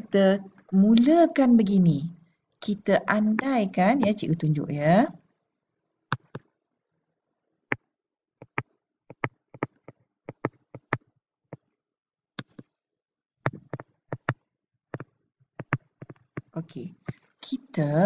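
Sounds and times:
stylus tapping on touchscreen: 0:06.1 - 0:06.5, 0:07.7 - 0:11.6, 0:12.4 - 0:12.7, 0:13.5 - 0:14.4, 0:15.0 - 0:16.5.

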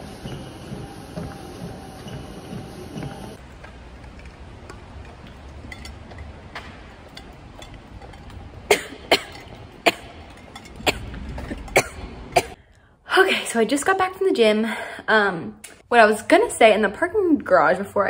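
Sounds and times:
woman coughing: 0:08.7 - 0:12.6.

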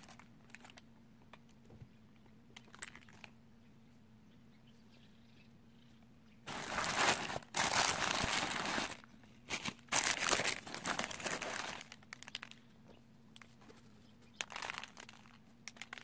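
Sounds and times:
tissue paper crinkling: 0:06.5 - 0:12.6, 0:14.4 - 0:16.0.

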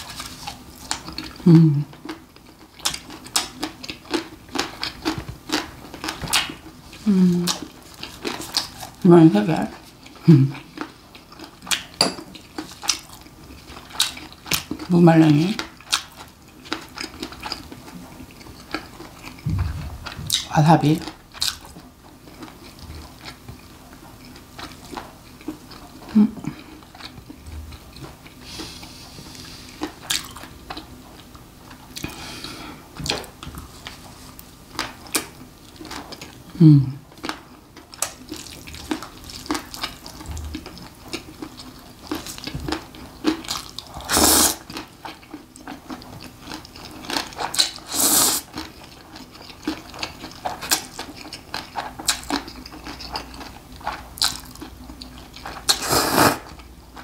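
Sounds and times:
wet chewing and mouth clicks: 0:00.1 - 0:09.0, 0:09.7 - 0:14.9, 0:15.6 - 0:28.4, 0:29.3 - 0:32.2, 0:37.0 - 0:57.0
person humming mm: 0:01.4 - 0:01.9, 0:07.0 - 0:07.6, 0:10.3 - 0:10.6, 0:36.5 - 0:37.0
slurping noodles: 0:44.0 - 0:44.6, 0:55.7 - 0:56.5.

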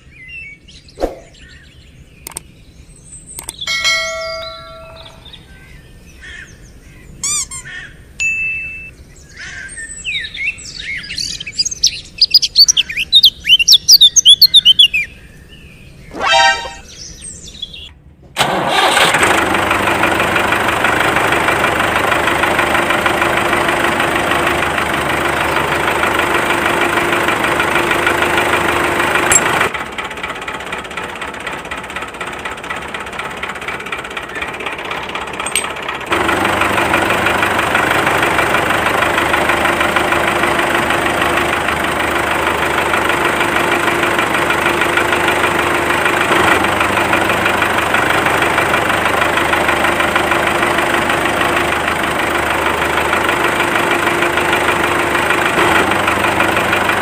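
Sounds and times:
birds chirping: 0:00.0 - 0:18.1, 0:32.6 - 0:51.2
loud engine running: 0:03.3 - 0:06.4, 0:09.8 - 0:57.0
short clicks and tones: 0:16.1 - 0:16.9.

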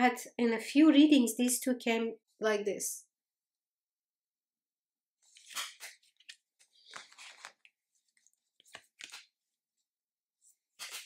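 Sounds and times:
cards swishing and tapping: 0:05.3 - 0:09.4.

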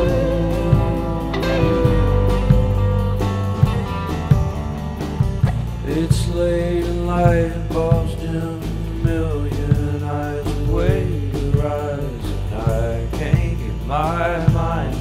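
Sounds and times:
person singing long notes: 0:00.0 - 0:03.0
bluesy song with guitar and drums: 0:00.0 - 0:15.0.

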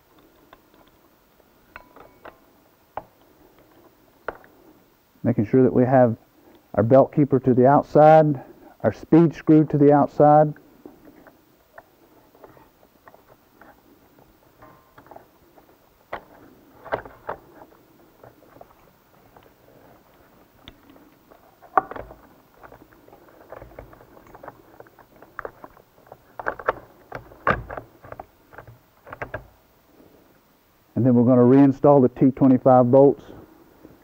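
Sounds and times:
metal and plastic parts clicking: 0:11.2 - 0:29.6.

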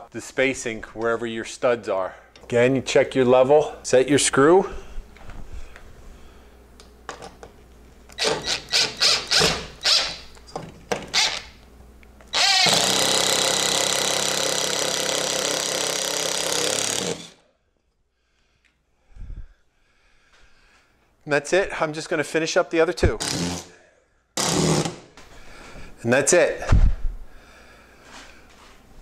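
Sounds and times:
cordless drill driving a screw: 0:08.2 - 0:10.2, 0:11.1 - 0:11.6, 0:12.3 - 0:17.4.

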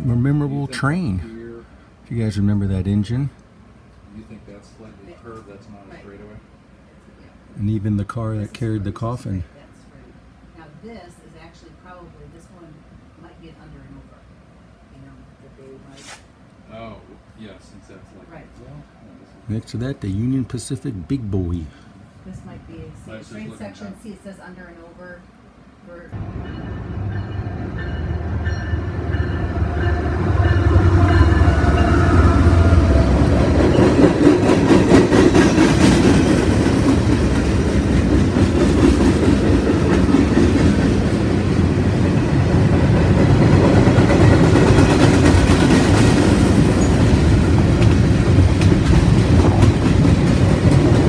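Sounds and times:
freight train rumble: 0:00.0 - 0:11.9, 0:16.4 - 0:51.0
wheels clacking on rails: 0:26.1 - 0:51.0.

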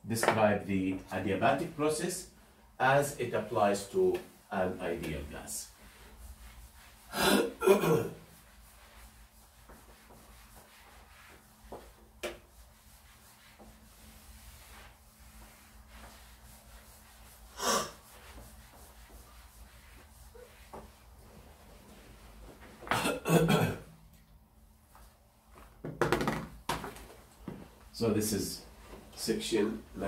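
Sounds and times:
eraser rubbing on whiteboard: 0:05.0 - 0:07.1, 0:08.2 - 0:22.3.

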